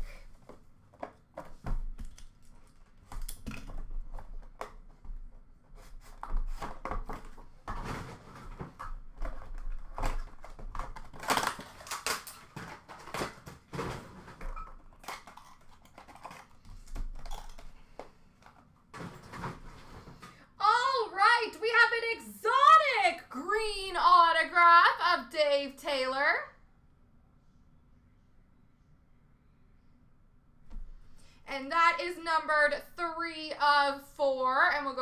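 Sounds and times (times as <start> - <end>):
cardboard and wrapping rustling: 0.1 - 20.3.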